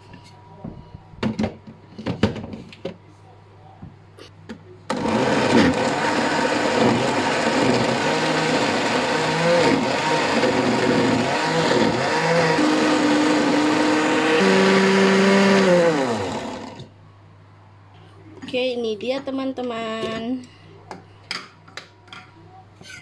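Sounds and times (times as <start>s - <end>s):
blender motor running: 4.9s - 16.9s.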